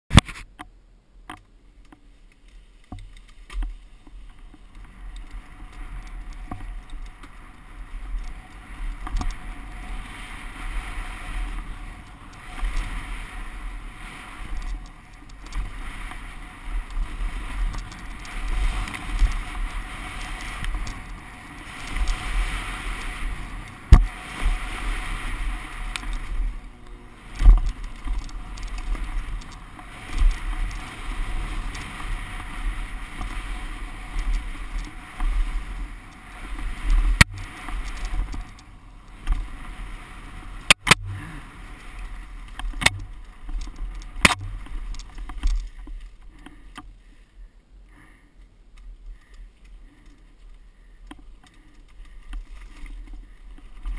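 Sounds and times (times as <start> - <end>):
tyres rolling over wet dirt: 1.8 - 47.4, 48.7 - 53.9
bike thumping over bumps: 2.9 - 39.8
wind rushing over helmet: 15.6 - 46.0.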